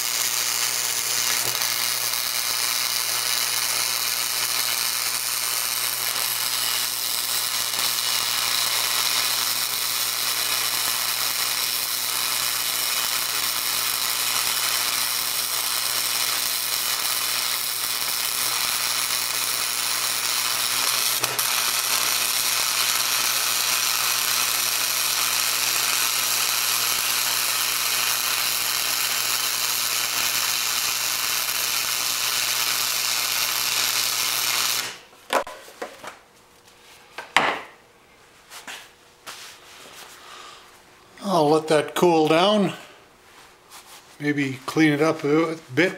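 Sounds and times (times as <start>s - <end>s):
welding arc crackling: 0.0s - 35.1s.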